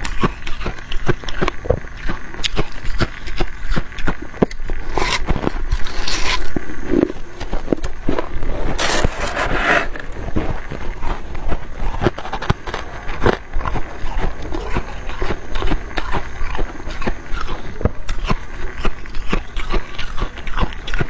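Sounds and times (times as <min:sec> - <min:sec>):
frost being chewed crunching: 0:00.0 - 0:21.0
plastic scoop scraping frost: 0:08.6 - 0:10.6.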